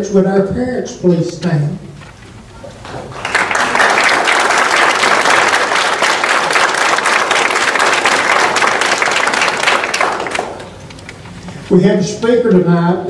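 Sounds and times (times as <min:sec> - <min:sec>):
audience applauding: 0:02.8 - 0:11.1.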